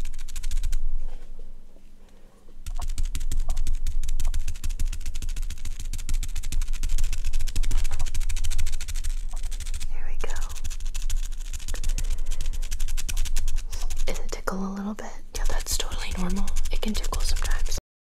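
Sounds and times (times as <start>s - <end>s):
scratchy strokes on microphone: 2.7s - 14.6s, 15.4s - 17.8s.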